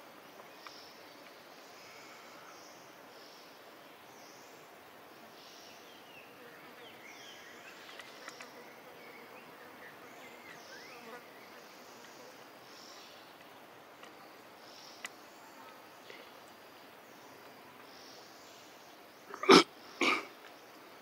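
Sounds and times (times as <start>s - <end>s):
insect buzzing: 4.1s - 13.0s.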